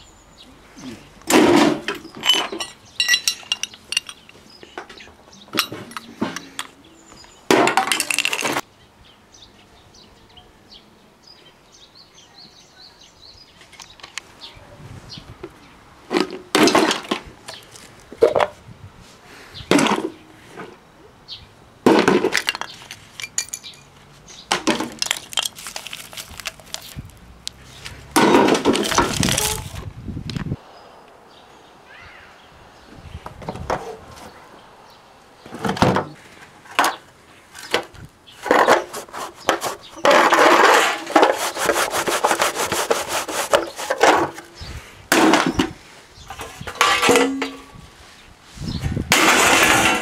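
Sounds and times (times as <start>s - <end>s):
scrap parts clinking and clattering: 1.4s - 4.4s, 5.5s - 6.7s, 7.6s - 8.6s, 22.0s - 23.9s, 24.6s - 27.0s, 28.2s - 29.8s, 39.5s - 41.4s, 46.3s - 47.7s, 49.1s - 50.0s.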